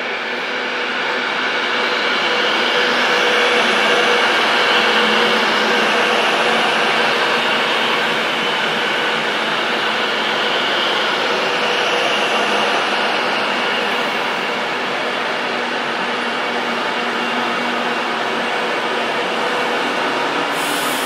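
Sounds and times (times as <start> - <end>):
electric train whirring hum: 0.0 - 21.0.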